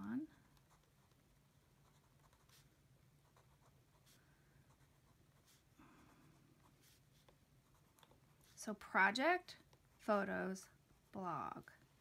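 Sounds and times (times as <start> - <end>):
quiet room hum: 0.0 - 12.0
pen scratching on paper: 0.4 - 5.7, 6.3 - 8.6.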